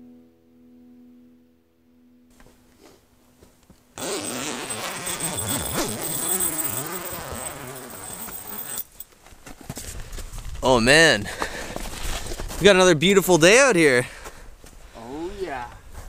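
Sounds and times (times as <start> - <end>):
tent zipper pulled open: 4.0 - 8.9.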